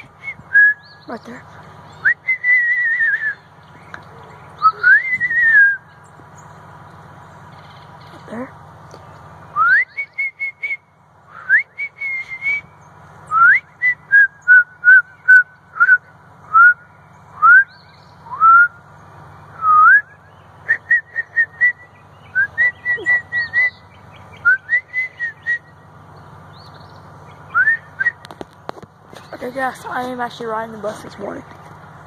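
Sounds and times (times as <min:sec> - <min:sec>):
person whistling bird calls: 0:00.0 - 0:01.1, 0:02.0 - 0:03.5, 0:04.6 - 0:05.9, 0:09.6 - 0:12.7, 0:13.3 - 0:16.8, 0:17.4 - 0:18.8, 0:19.6 - 0:23.8, 0:24.4 - 0:25.7, 0:27.5 - 0:28.3.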